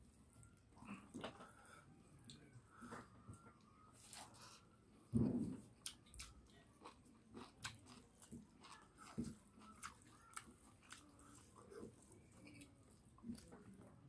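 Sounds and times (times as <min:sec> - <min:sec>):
chewing food: 0:05.6 - 0:14.0.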